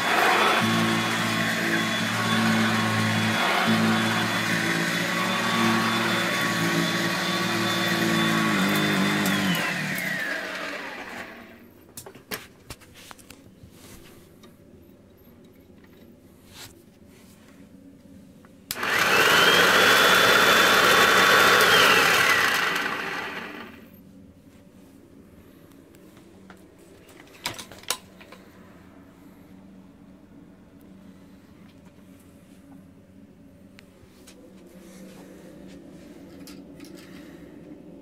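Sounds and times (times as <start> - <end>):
vacuum cleaner motor whine: 0.0 - 11.6, 18.7 - 24.0.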